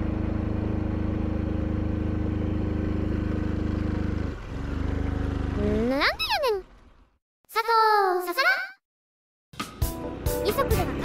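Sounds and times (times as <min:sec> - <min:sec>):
motorcycle engine labouring uphill: 0:00.0 - 0:07.1.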